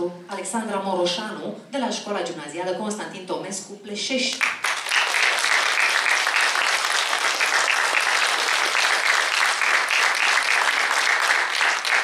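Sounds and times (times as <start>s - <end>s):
audience applauding: 4.4s - 12.0s.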